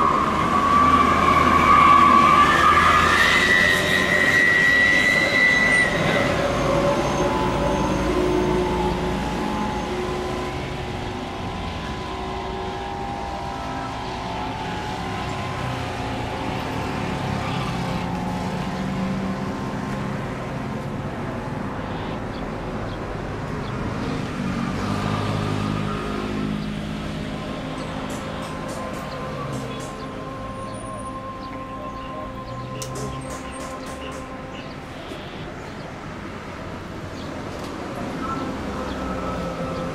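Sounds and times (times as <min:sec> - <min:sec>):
high whistle: 0:00.0 - 0:18.7, 0:27.1 - 0:35.6
jet engines whining: 0:00.0 - 0:23.2, 0:24.5 - 0:37.0.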